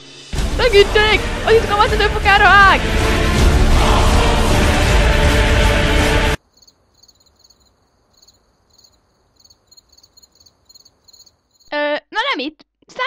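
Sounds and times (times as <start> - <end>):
loud music: 0.1 - 6.4
faint cricket chirping: 6.4 - 11.7.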